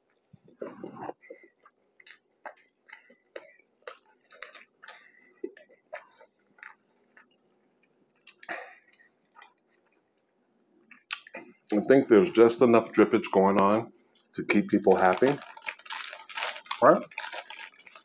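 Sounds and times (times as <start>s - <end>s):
person chewing with wet smacks: 0.6s - 11.8s.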